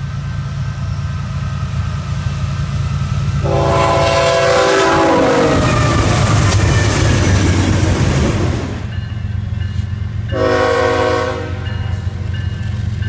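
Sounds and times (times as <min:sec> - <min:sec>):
freight train rushing clatter: 0:00.0 - 0:13.0
locomotive horn blast: 0:03.4 - 0:06.6, 0:10.3 - 0:12.2.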